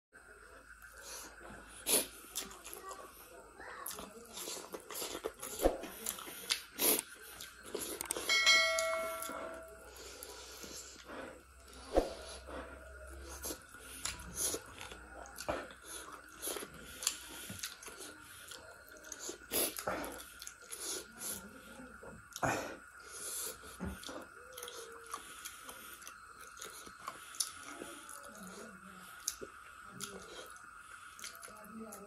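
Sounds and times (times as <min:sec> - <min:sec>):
wet chewing and lip smacks: 0:03.8 - 0:08.3, 0:13.3 - 0:21.3, 0:23.4 - 0:31.6.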